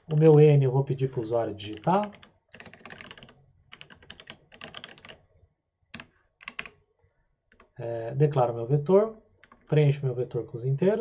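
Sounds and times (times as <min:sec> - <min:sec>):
typing on computer keyboard: 0:01.6 - 0:05.2, 0:05.9 - 0:06.8, 0:07.5 - 0:07.8, 0:09.4 - 0:09.7.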